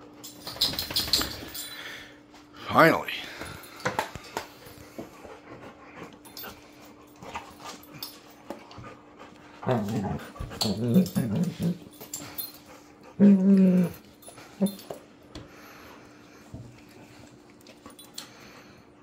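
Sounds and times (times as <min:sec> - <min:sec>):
paws scuffling on hard floor: 0:03.5 - 0:13.1
dogs growling: 0:09.3 - 0:14.9.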